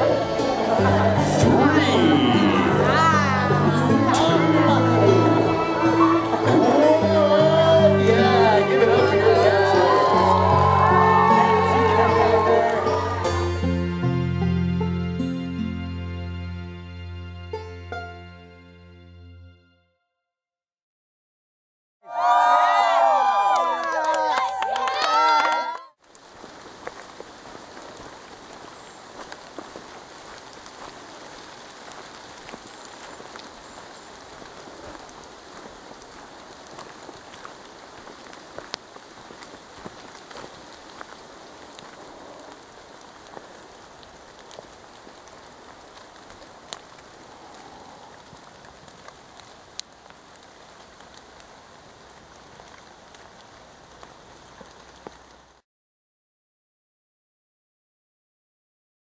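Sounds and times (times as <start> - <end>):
steady rain falling: 0.0 - 17.2, 22.1 - 55.6
raindrop clicks: 26.0 - 55.6.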